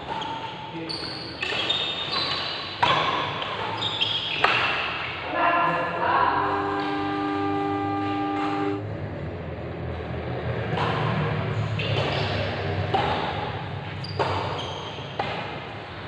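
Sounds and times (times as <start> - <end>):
rackets striking shuttlecock: 1.4 - 5.1, 11.8 - 15.8
steady multi-note tone: 6.3 - 9.8.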